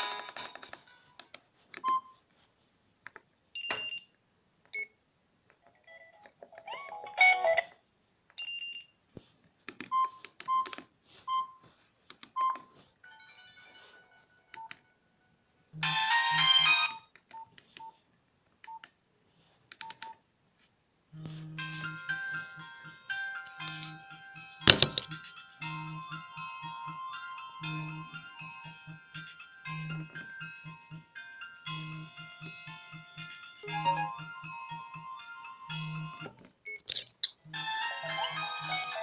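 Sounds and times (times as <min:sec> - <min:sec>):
phone button beeps: 0:03.6 - 0:04.1
ringtone snippets: 0:12.4 - 0:14.7, 0:21.2 - 0:36.8, 0:37.5 - 0:39.0.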